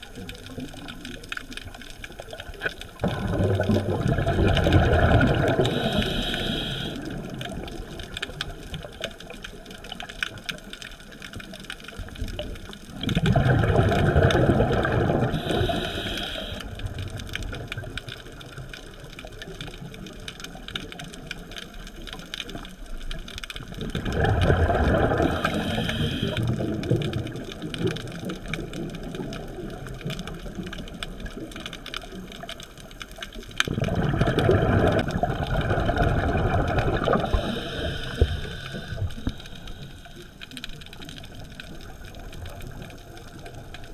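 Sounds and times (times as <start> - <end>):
faint crackling clicks: 0.0 - 43.9
regulator exhale bubbling: 2.9 - 8.1, 12.9 - 17.9, 23.8 - 28.0, 33.6 - 40.9.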